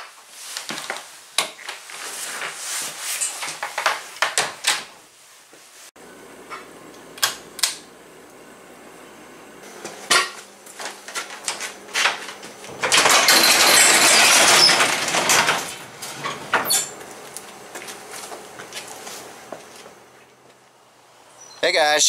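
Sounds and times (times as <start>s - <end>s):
garage door rattling up tracks: 11.1s - 17.7s
metal clanks: 12.7s - 17.0s.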